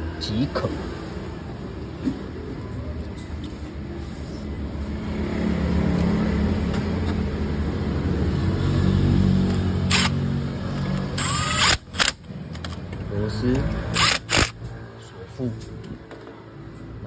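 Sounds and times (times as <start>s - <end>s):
electric ratchet whirring: 9.8s - 12.4s, 13.8s - 14.7s.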